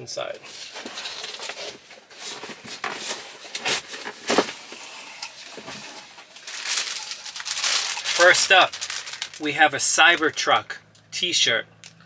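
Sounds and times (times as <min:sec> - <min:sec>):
cardboard box rustling and scraping: 0:00.5 - 0:09.2.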